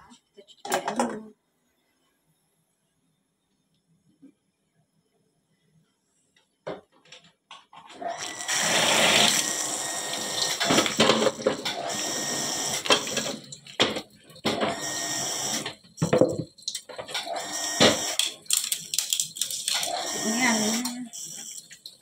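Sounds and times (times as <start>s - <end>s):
tap water running into sink: 8.0s - 22.0s
bowls and utensils knocking: 16.0s - 17.1s.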